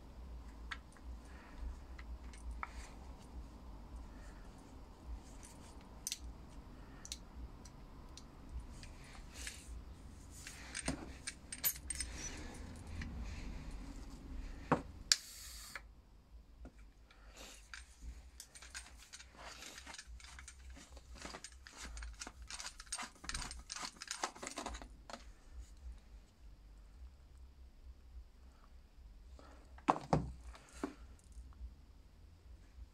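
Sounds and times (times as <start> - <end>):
light metallic clicks and clinks: 0.6 - 3.3, 5.1 - 13.2, 17.1 - 25.3.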